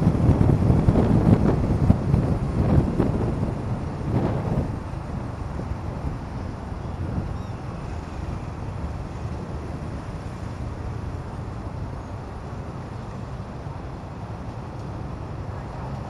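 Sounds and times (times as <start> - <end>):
surrounding traffic: 0.0 - 16.0
wind buffeting microphone: 0.0 - 16.0.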